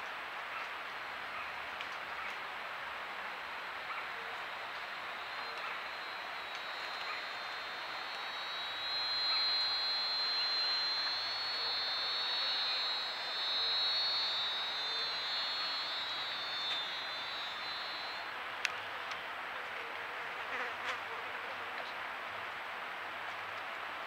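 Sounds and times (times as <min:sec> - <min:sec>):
steady hiss: 0:00.0 - 0:24.0
high insect buzz: 0:03.5 - 0:18.3.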